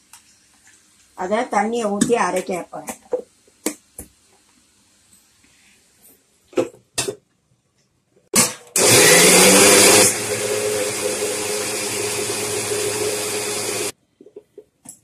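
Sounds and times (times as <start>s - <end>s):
mixer grinder motor running: 8.4s - 13.9s.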